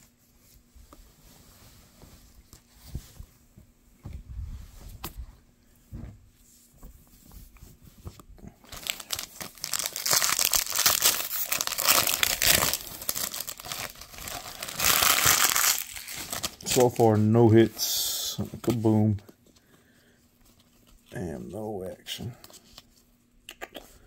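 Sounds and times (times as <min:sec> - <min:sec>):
foil wrapper crinkling and tearing: 0:08.6 - 0:17.2.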